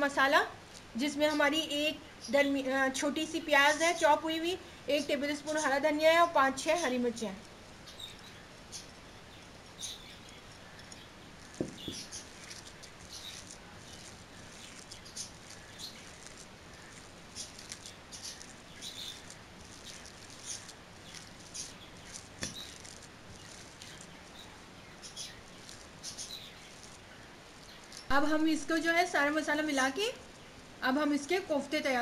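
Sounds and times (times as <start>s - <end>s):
hands squelching raw mince: 10.4s - 28.8s
sharp knocks on glass bowl: 11.6s - 12.1s.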